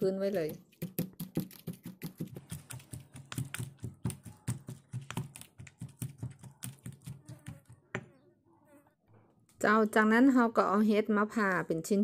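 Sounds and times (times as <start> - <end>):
stone pestle pounding in mortar: 0.4 - 7.8.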